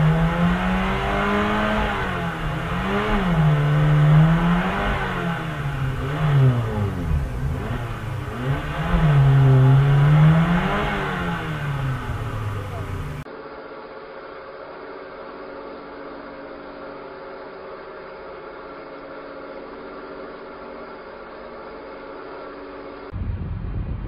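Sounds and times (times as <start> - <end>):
car engine revving: 0.0 - 13.3.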